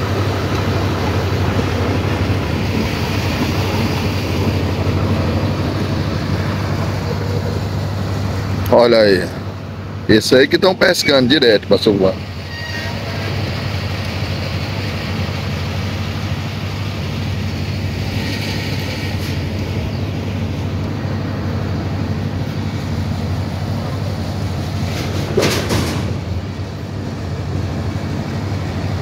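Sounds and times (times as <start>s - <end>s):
large engine humming: 0.0s - 29.0s.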